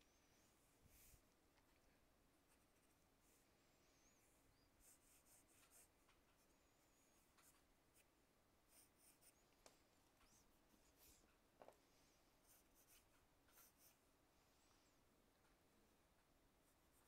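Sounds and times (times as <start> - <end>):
pencil scratching on paper: 4.8 - 6.5, 8.7 - 9.4, 12.4 - 14.0.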